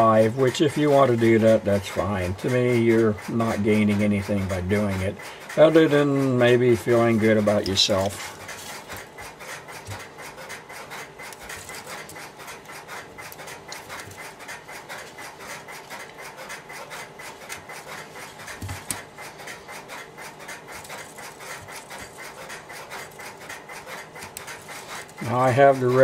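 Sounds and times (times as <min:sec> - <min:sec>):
telephone wires rubbing and rustling: 0:05.8 - 0:26.0.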